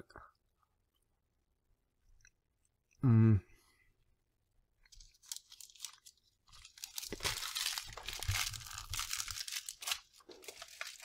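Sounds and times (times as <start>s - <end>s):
plastic wrapper crinkling: 4.8s - 11.0s.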